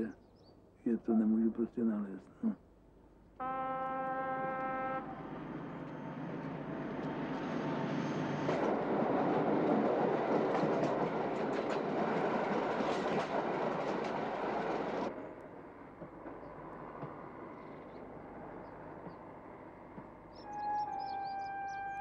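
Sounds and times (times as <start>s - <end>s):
train horn blast: 3.4s - 5.4s, 20.4s - 22.0s
train wheels rumbling: 4.5s - 21.4s
rail clicks: 5.7s - 20.6s.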